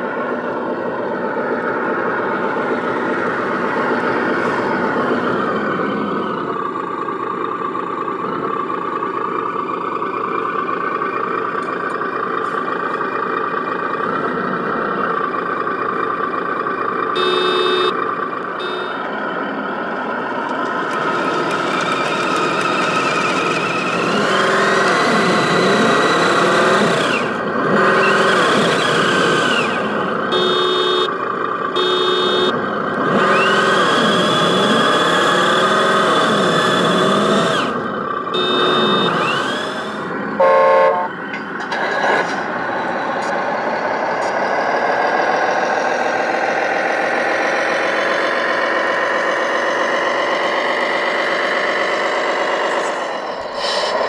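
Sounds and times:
simulated diesel truck engine revving: 0.0s - 54.0s
loud horn blast: 17.2s - 18.0s, 18.6s - 19.1s, 30.3s - 31.2s, 31.8s - 32.6s, 38.4s - 39.2s, 40.4s - 41.2s
short electronic beeps: 17.2s - 18.0s, 18.6s - 19.1s, 30.3s - 31.1s, 31.8s - 32.6s, 38.4s - 39.3s.

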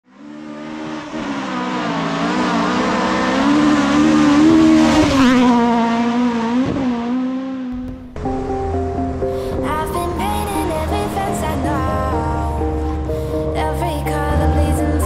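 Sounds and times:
car engine revving high: 0.1s - 15.0s.

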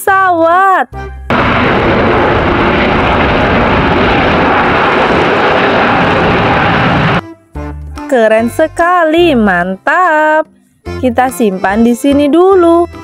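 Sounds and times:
jet engines roaring: 1.3s - 7.2s.

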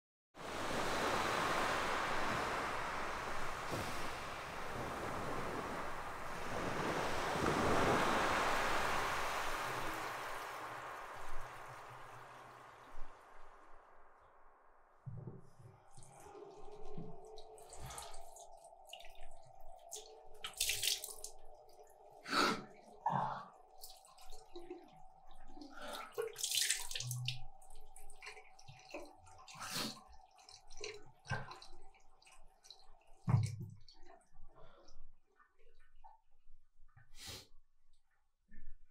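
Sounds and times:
water splashing in sink: 15.9s - 22.1s, 23.7s - 34.8s.

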